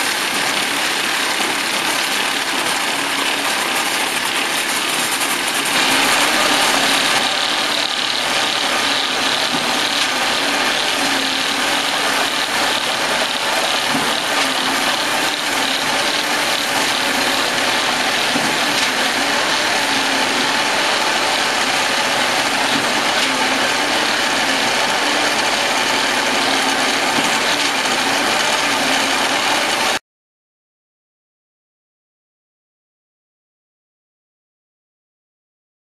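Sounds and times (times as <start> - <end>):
vibrating screed rattling: 0.0 - 30.0.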